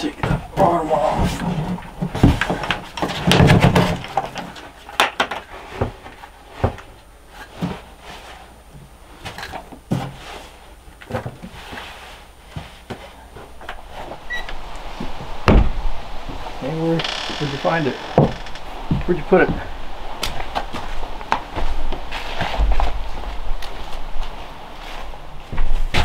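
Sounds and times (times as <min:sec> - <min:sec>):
objects clattering on wooden shelves: 0:00.0 - 0:07.9.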